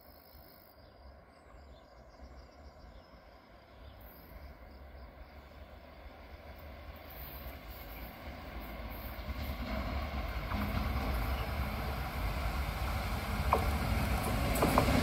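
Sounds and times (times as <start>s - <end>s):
crickets chirping: 0.0s - 15.0s
distant train rumble: 1.1s - 15.0s.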